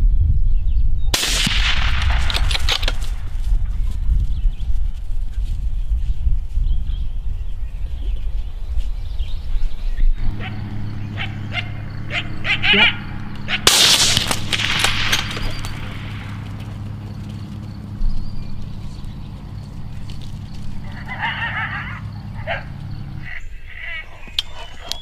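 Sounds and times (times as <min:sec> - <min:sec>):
wind rumble: 0:00.0 - 0:24.2
rifle shot echoing: 0:01.1 - 0:03.4, 0:13.4 - 0:17.1
steady low hum: 0:01.2 - 0:24.2
faint chirping: 0:15.1 - 0:25.0.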